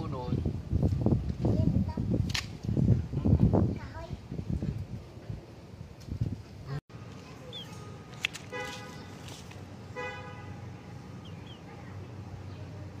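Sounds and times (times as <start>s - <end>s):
birds chirping: 7.2s - 13.0s
vehicle horn toots: 8.5s - 9.2s, 9.9s - 11.0s.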